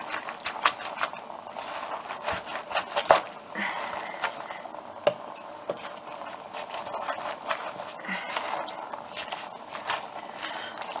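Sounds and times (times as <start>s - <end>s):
vegetable strips rustling in a pot: 0.0s - 11.0s.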